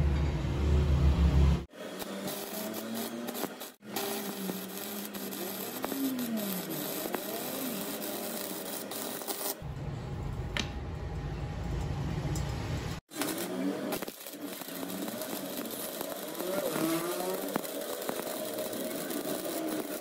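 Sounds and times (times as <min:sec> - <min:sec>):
welding arc crackling and hissing: 0:01.7 - 0:09.6, 0:13.0 - 0:20.0.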